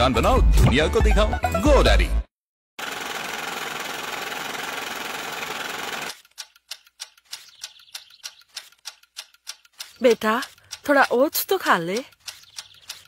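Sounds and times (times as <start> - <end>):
fast mechanical rattle: 2.8 - 10.9
sharp clicks: 5.4 - 13.0.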